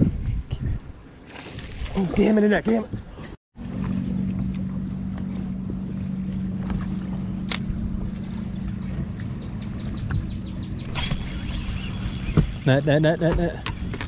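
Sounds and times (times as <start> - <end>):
electric trolling motor hum: 3.6 - 14.0.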